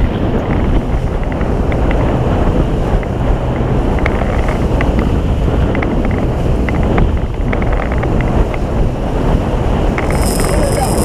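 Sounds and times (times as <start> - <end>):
outboard motors running: 0.0 - 11.0
rush of boat wake: 0.0 - 11.0
wind buffeting microphone: 0.0 - 11.0.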